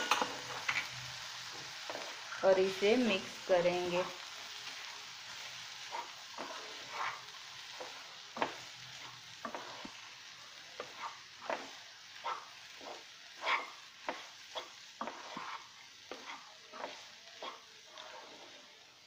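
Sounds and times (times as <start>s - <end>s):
seeds sizzling in a pan: 0.0s - 19.0s
spatula scraping a pan: 1.5s - 2.3s, 5.7s - 19.0s.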